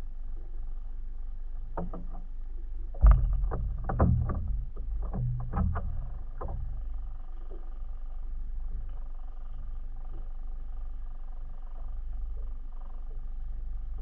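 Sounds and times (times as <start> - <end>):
steady low rumble: 0.0 - 14.0
knocks and slaps on a boat: 1.8 - 2.3, 3.0 - 7.0
heavy thump: 3.0 - 6.8.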